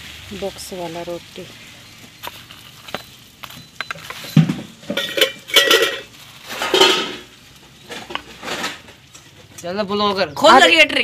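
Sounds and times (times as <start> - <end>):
steel kitchenware clattering: 3.0 - 9.8
thump in metal pot: 3.8 - 7.3.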